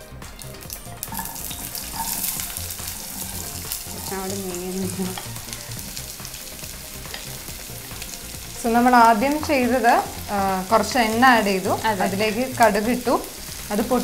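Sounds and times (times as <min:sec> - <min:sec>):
onions sizzling in oil: 0:00.0 - 0:14.0
spoon clinking and scraping: 0:01.1 - 0:04.3.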